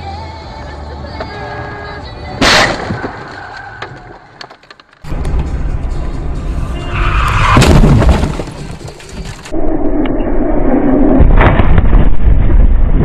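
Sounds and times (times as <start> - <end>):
car crash: 2.4 - 9.5
metal crunching: 7.3 - 9.6
heavy impact: 7.4 - 9.5.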